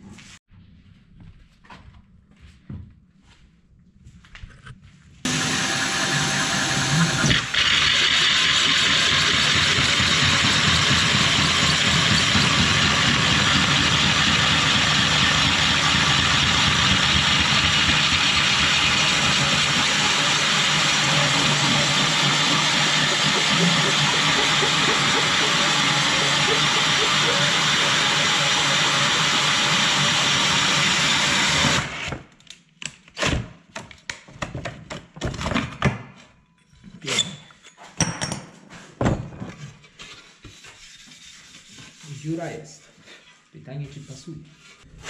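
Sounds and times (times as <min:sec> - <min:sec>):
drill hole saw grinding tile: 0:05.3 - 0:32.2.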